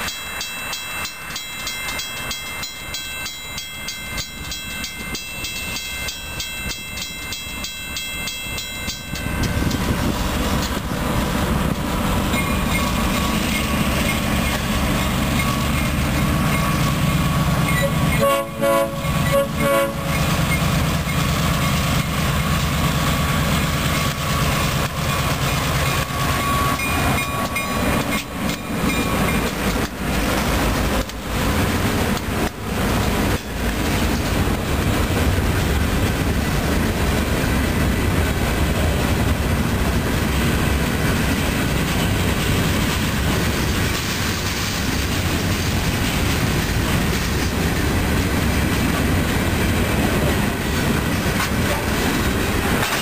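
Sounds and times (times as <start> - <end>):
crossing bells ringing: 0.0 - 10.0, 12.3 - 22.5, 23.3 - 29.7
train wheels clattering: 0.0 - 18.3, 19.0 - 37.4, 40.2 - 53.0
diesel locomotive engine rumble: 0.0 - 53.0
train horn: 17.8 - 20.2.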